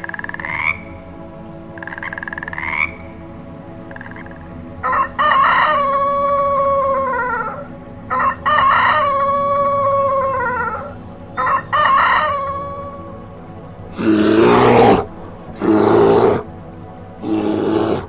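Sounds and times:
rooster crowing: 4.8s - 13.3s
rough low animal calls: 13.9s - 16.5s, 17.2s - 18.0s.

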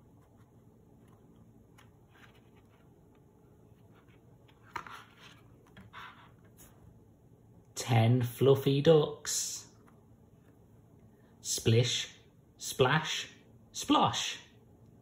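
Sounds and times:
cardboard page turning: 1.0s - 3.0s, 3.8s - 6.5s.

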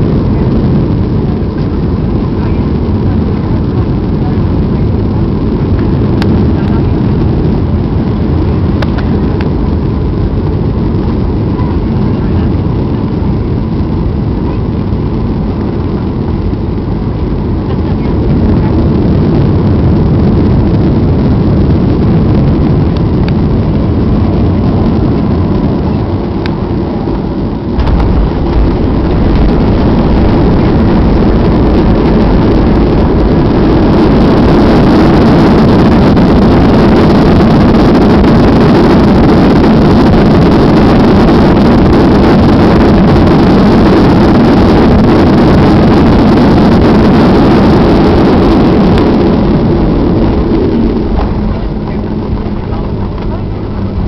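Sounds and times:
aircraft cabin engine noise: 0.0s - 54.0s
wheels rumbling on runway: 0.0s - 54.0s
engines reverse thrust roar: 17.3s - 54.0s.

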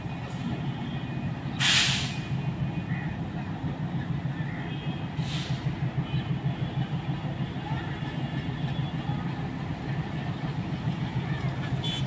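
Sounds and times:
diesel engine pulsing rumble: 0.0s - 12.0s
brake air hiss: 1.6s - 2.3s, 5.2s - 5.7s.

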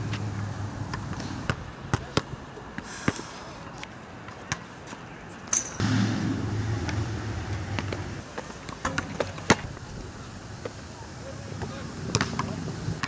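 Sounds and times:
vehicle engine hum: 0.0s - 1.4s, 5.8s - 8.3s.

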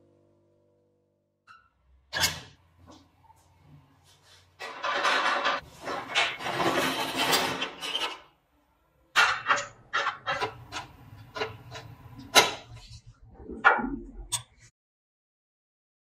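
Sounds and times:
sheet metal scraping: 4.6s - 8.4s.

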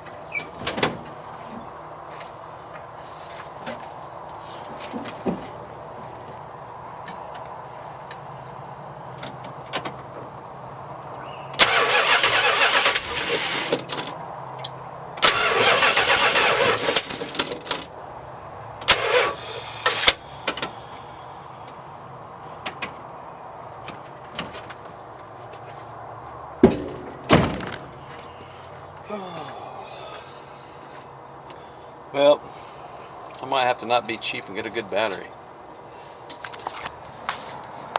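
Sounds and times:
starter motor cranking: 11.6s - 13.8s, 15.2s - 17.1s.

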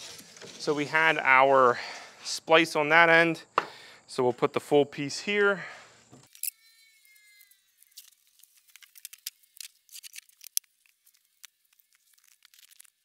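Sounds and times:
foam board crackling: 7.9s - 13.0s.

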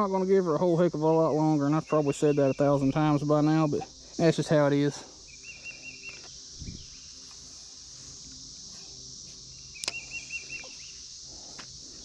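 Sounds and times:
bird singing wavering phrase: 0.0s - 7.1s, 9.6s - 11.0s
high insect chorus: 0.0s - 12.0s.

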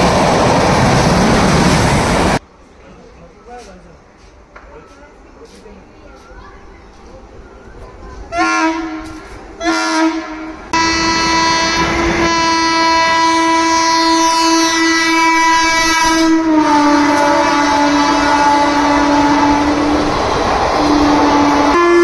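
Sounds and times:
locomotive horn blasts: 8.3s - 19.8s, 20.8s - 22.0s.

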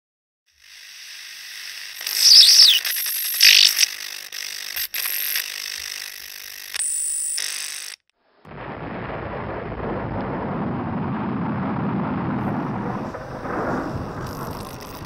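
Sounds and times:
sharp clicks: 1.9s - 8.1s
noisy burst: 2.0s - 3.9s, 8.5s - 15.0s
falling squeal: 2.1s - 2.8s
low rumbling noise: 8.3s - 15.0s
hiss and static: 12.8s - 15.0s.

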